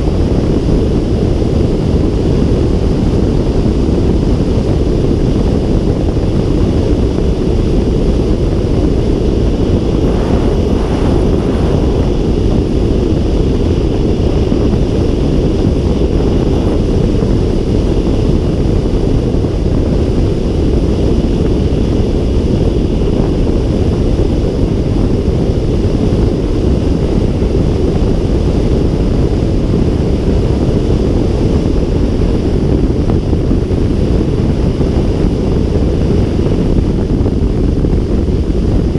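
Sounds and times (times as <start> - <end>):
air rushing over glider canopy: 0.0 - 38.9
wind noise on microphone: 0.0 - 38.9.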